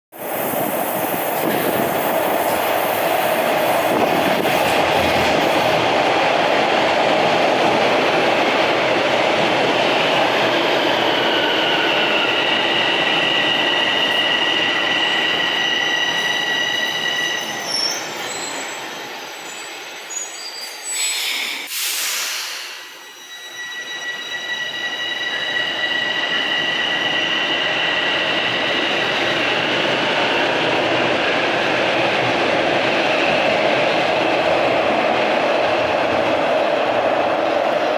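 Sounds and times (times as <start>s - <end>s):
subway train rumble and rush: 0.1s - 37.9s
brief hiss: 21.0s - 23.0s.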